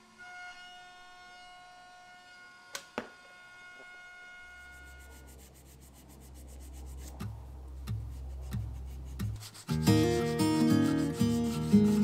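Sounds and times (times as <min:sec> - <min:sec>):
hand sanding wood: 0:04.8 - 0:12.0.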